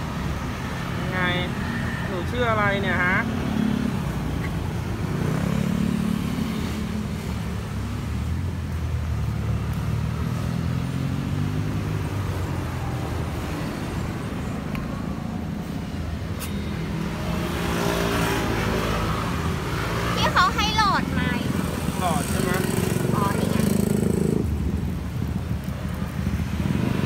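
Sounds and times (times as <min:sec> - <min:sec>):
road traffic: 0:00.0 - 0:27.0.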